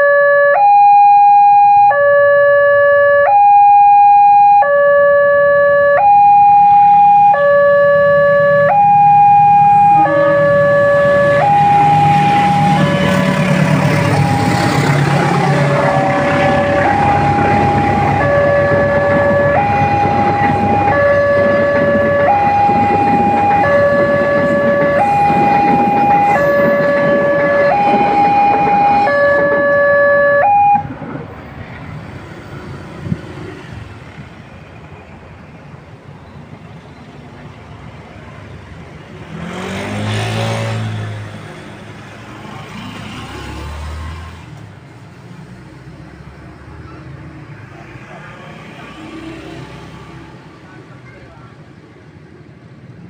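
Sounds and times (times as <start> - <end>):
level crossing alarm two tones: 0.0 - 30.9
passing train rumble: 5.1 - 53.0.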